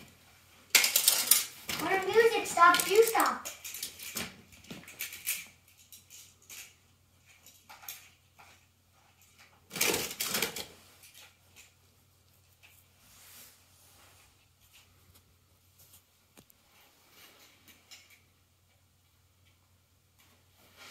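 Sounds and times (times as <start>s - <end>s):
toy cars clicking and clattering: 0.7s - 11.8s, 17.4s - 18.3s.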